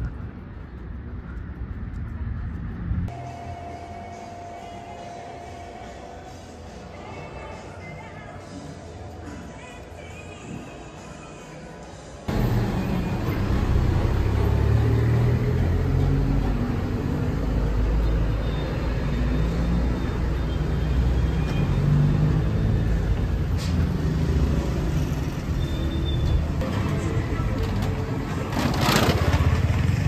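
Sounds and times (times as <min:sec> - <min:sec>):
vehicle engines rumbling: 0:00.0 - 0:03.2, 0:12.3 - 0:30.0.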